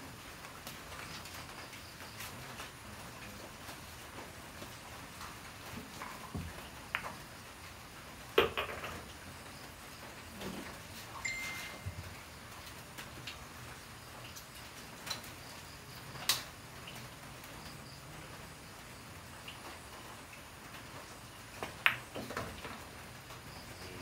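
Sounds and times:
pool balls knocking: 0:08.4 - 0:09.0
pool balls clicking: 0:08.4 - 0:09.2, 0:21.6 - 0:22.8.

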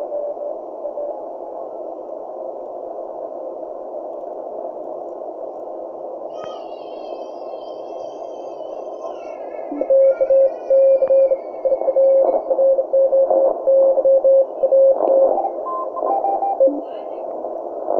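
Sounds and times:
receiver hiss: 0:00.0 - 0:17.9
morse code beeps: 0:10.7 - 0:16.8.

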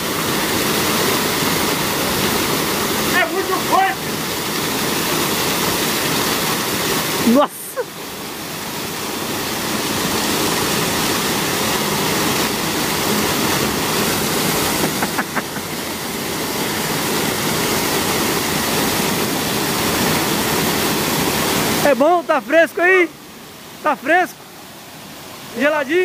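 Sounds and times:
small waterfall rushing: 0:00.0 - 0:26.0.

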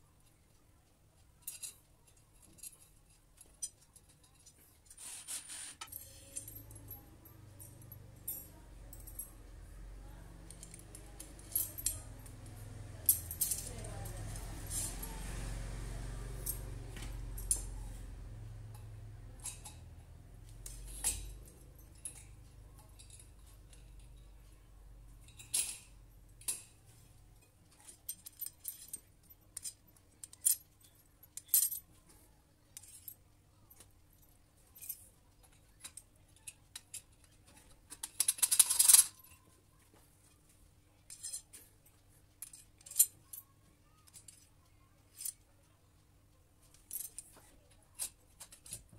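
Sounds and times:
metal hooks clinking: 0:10.5 - 0:15.1.

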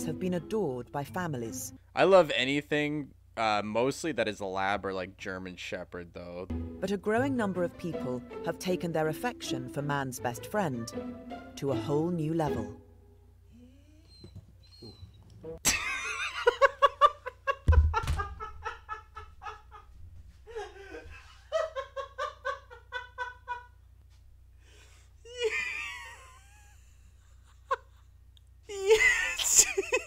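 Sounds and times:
man laughing hard: 0:15.7 - 0:19.9, 0:20.5 - 0:23.7, 0:25.3 - 0:28.0, 0:28.7 - 0:30.0
low thump: 0:17.6 - 0:18.6.

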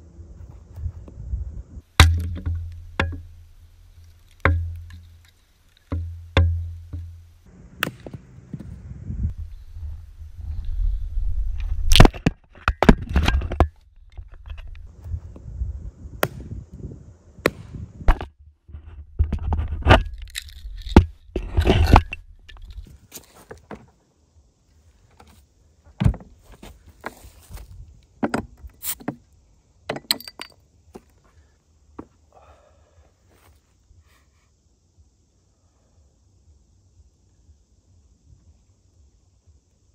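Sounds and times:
hatchet splitting wood: 0:02.0 - 0:07.2.

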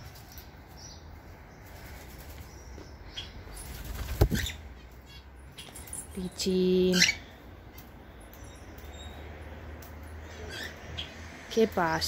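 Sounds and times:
bird wings fluttering: 0:01.6 - 0:02.6, 0:03.6 - 0:04.6.

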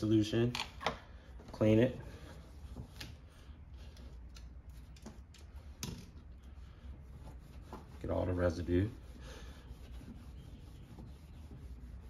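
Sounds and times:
towel rubbing on plastic lens: 0:06.3 - 0:12.0.

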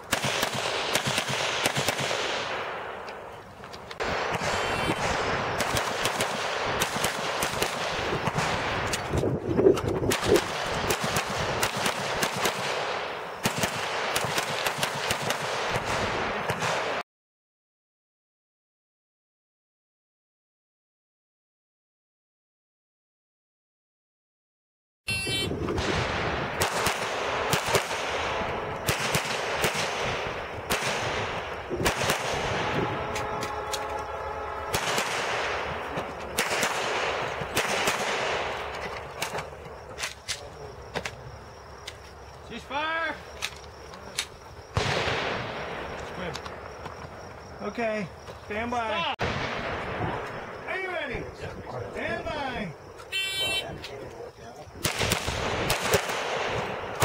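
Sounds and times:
pistol firing rapidly: 0:00.1 - 0:02.8, 0:04.0 - 0:08.8, 0:10.1 - 0:17.0, 0:26.5 - 0:32.8, 0:34.7 - 0:35.7, 0:36.4 - 0:38.6, 0:54.8 - 0:57.0.

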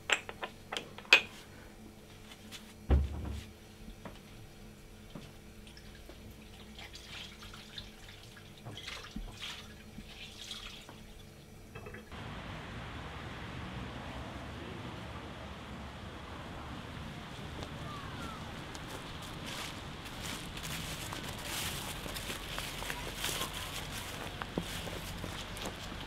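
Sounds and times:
steady outdoor hiss: 0:00.0 - 0:08.7, 0:09.4 - 0:26.0
dull thump: 0:02.9 - 0:03.4
water splashing on dishes: 0:05.2 - 0:12.1.

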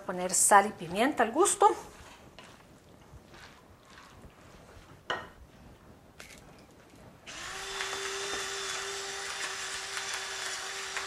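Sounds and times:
electric grinder motor whining: 0:07.3 - 0:11.0.

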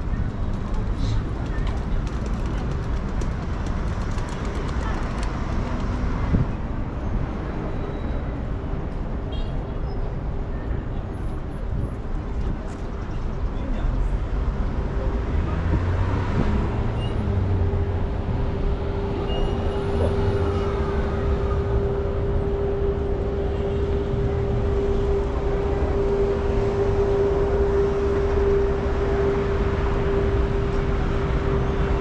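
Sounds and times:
city traffic rumble: 0:00.0 - 0:32.0
constant hum: 0:17.2 - 0:32.0.

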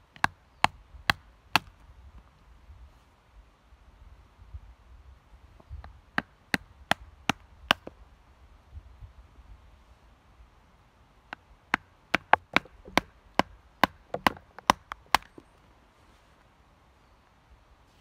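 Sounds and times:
knife chopping wood: 0:00.1 - 0:01.8, 0:06.1 - 0:07.9, 0:11.3 - 0:15.5.

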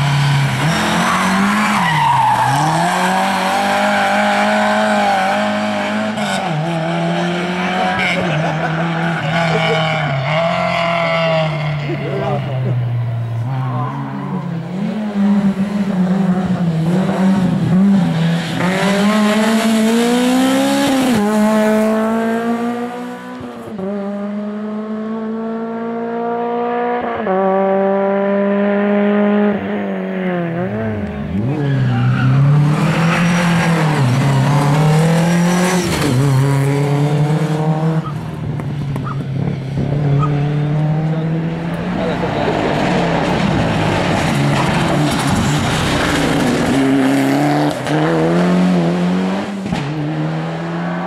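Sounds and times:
rally car engines revving: 0:00.0 - 0:51.0.

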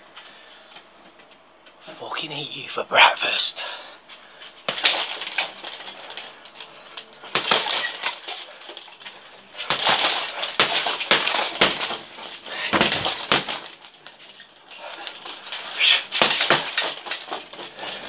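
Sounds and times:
punches thudding on heavy bag: 0:04.7 - 0:06.3, 0:07.3 - 0:09.0, 0:09.6 - 0:14.2, 0:14.8 - 0:18.0
chains jangling: 0:04.7 - 0:18.0.

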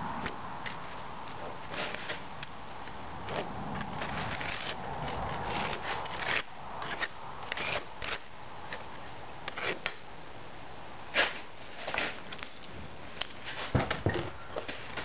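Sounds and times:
metal straightedge scraping sand: 0:11.1 - 0:12.2.

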